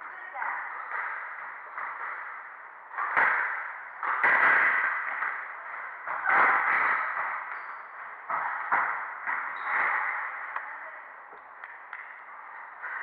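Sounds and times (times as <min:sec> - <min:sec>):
squash ball hits: 0:02.9 - 0:07.6
shoes squeaking on court: 0:06.2 - 0:08.6, 0:09.3 - 0:10.3.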